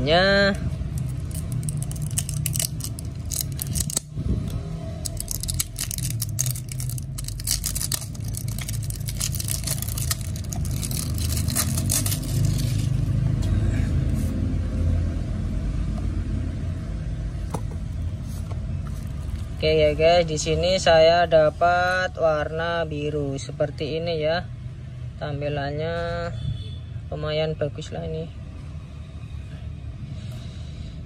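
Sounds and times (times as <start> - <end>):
shrink wrap crinkling: 0.9 - 4.1, 5.0 - 13.0.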